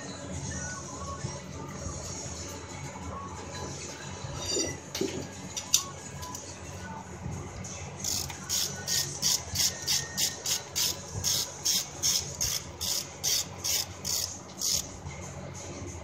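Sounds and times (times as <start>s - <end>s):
ratchet wrench clicking: 8.0s - 14.9s.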